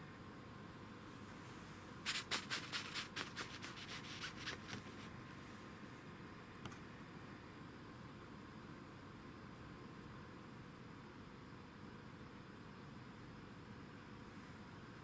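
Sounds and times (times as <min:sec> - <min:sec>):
scratchy rustles on nylon jacket: 0:01.4 - 0:05.1
click: 0:06.6 - 0:06.8.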